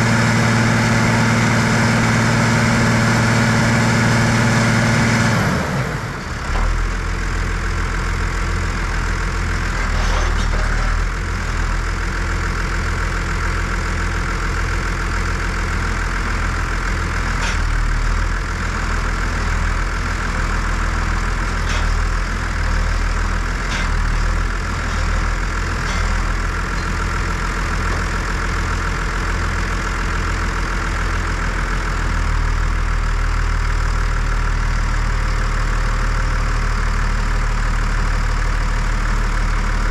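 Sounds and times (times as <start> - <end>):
tractor diesel engine idling: 0.0 - 39.9.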